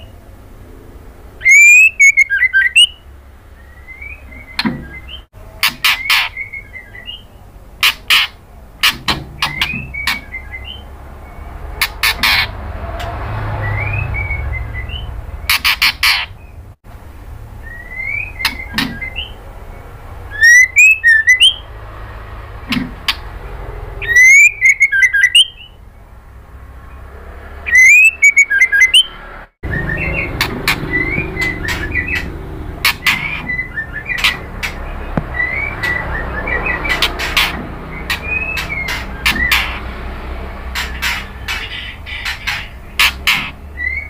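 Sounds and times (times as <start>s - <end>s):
bird rasping chatter: 1.4s - 3.0s, 3.8s - 7.2s, 7.8s - 13.2s, 14.0s - 16.6s, 20.3s - 21.7s, 22.6s - 25.7s, 27.7s - 44.0s
bird rising whistled notes: 1.4s - 3.0s, 20.3s - 21.6s, 27.7s - 29.1s.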